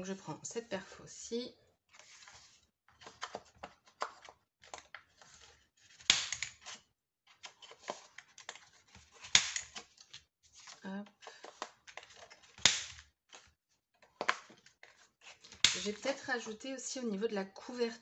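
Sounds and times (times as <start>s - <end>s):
paper rustling: 1.9s - 13.5s.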